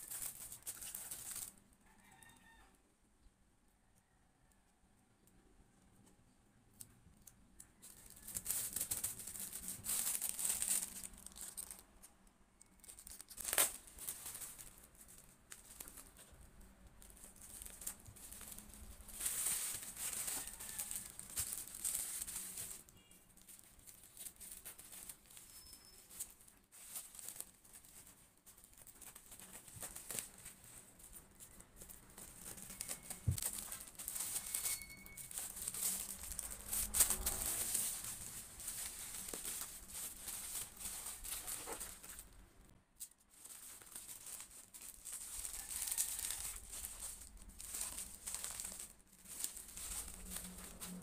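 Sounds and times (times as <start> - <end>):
packaging crinkling and rustling: 0.0 - 1.6, 7.2 - 42.4, 43.0 - 51.0.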